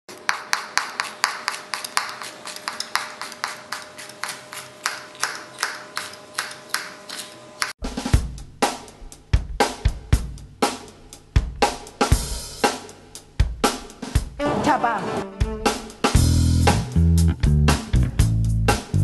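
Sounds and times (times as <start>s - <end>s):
knife chopping on cutting board: 0.2s - 7.7s
drum beat: 7.8s - 14.4s, 15.2s - 19.0s.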